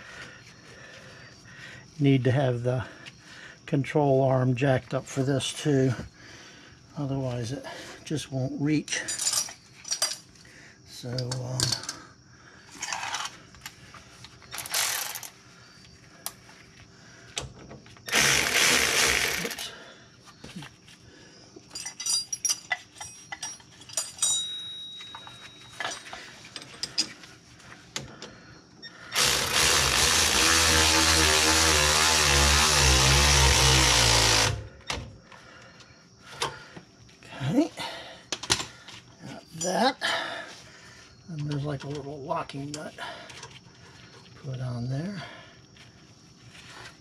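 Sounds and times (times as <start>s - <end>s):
cordless power tool running: 18.1s - 19.6s, 29.2s - 34.7s
hand tools clicking on metal: 18.1s - 19.7s.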